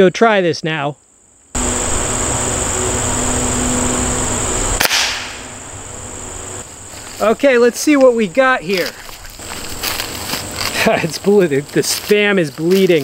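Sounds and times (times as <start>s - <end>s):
insects: 0.0s - 13.0s
outdoor hiss: 0.8s - 13.0s
air rifle shot: 4.8s - 5.6s.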